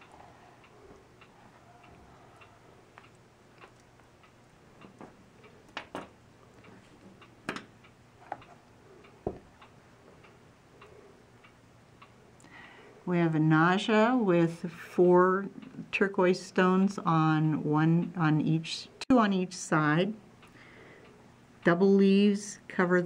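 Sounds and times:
clock ticking faintly: 0:00.0 - 0:12.6.

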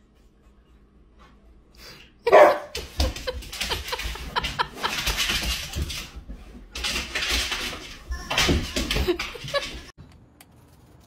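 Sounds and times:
dog barking: 0:02.3 - 0:02.7.

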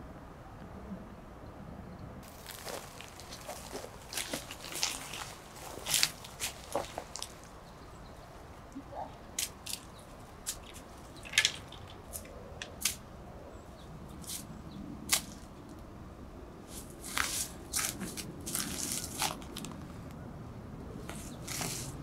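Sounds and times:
footsteps crunching on dry needles: 0:02.2 - 0:07.6, 0:16.7 - 0:19.8, 0:21.1 - 0:22.0.

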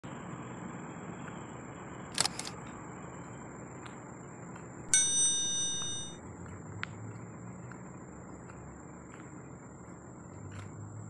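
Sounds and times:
steady outdoor hiss: 0:00.0 - 0:11.0
quick clicks: 0:02.1 - 0:02.7
bright ringing chime: 0:04.9 - 0:06.2.

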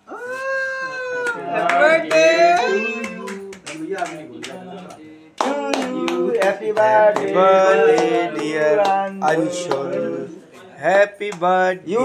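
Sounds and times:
group of voices singing: 0:01.2 - 0:12.0
rhythmic hand clapping: 0:01.2 - 0:12.0.

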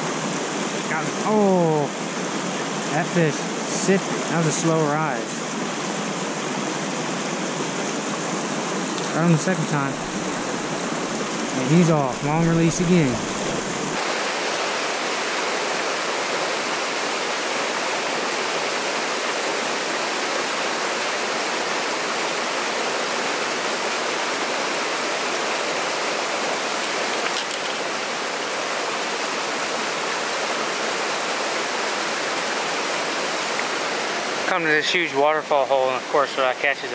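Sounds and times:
waterfall splashing into pool: 0:00.0 - 0:01.9, 0:11.5 - 0:36.9.

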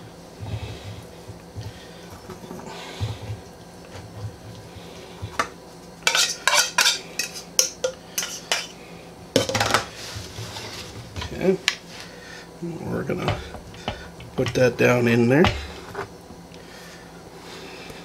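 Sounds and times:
fork clinking on tin can: 0:06.1 - 0:08.7.

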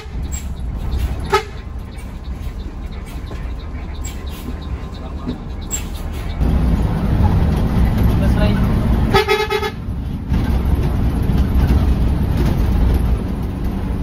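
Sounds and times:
bus horn toot: 0:00.0 - 0:00.4, 0:01.2 - 0:01.8, 0:09.1 - 0:09.9
bus engine rumble: 0:00.0 - 0:14.0.

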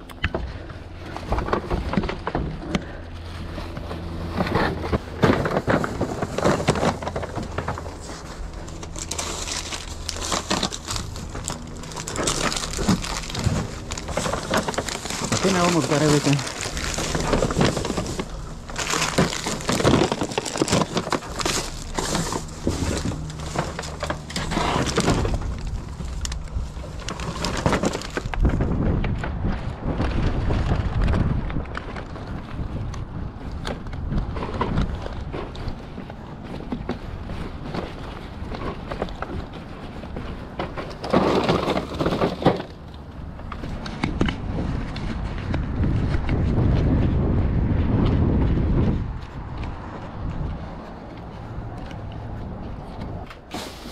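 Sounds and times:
plastic bags rustling: 0:02.8 - 0:28.7, 0:37.1 - 0:43.7, 0:53.4 - 0:53.9
footsteps on asphalt: 0:43.0 - 0:53.9.

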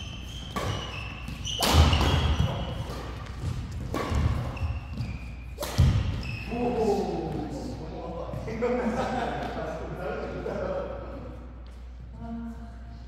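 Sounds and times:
rackets hitting shuttlecock: 0:00.2 - 0:06.3.

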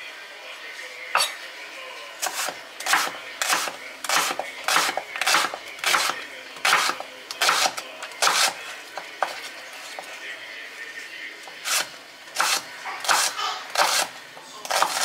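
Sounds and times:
knife chopping onion on board: 0:02.2 - 0:08.6, 0:11.7 - 0:15.0.

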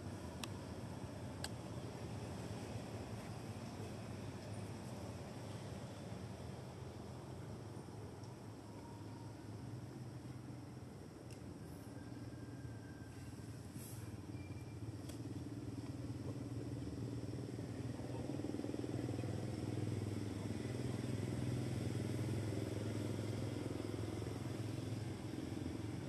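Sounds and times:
vehicle engine rumble: 0:00.0 - 0:26.0.

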